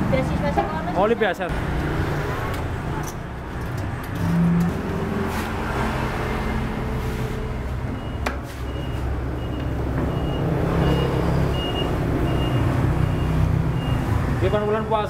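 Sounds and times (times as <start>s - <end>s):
vehicle engine rumbling: 0.0s - 15.0s
high warning beeps: 7.9s - 14.8s.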